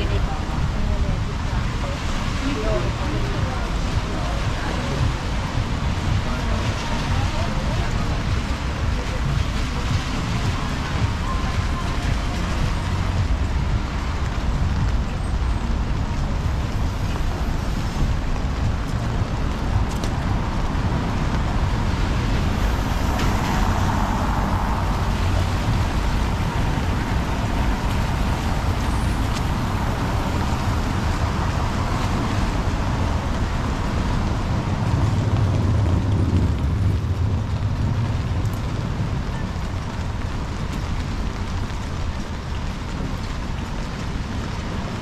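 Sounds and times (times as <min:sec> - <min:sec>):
engines rumbling: 0:00.0 - 0:45.0
tyres hissing on wet road: 0:00.0 - 0:45.0
vehicle passing: 0:15.7 - 0:41.5.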